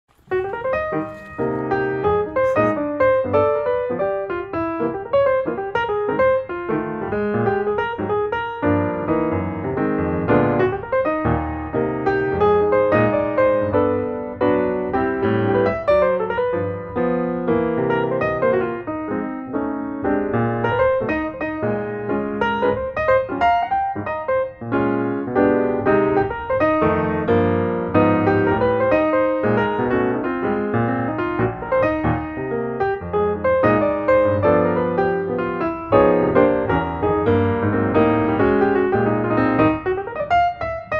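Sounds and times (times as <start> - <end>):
piano music: 0.0 - 40.9.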